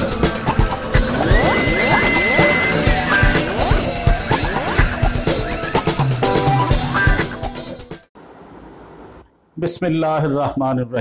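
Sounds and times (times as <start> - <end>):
electronic music with steady beat: 0.0 - 8.1
held synth tones: 0.7 - 7.2.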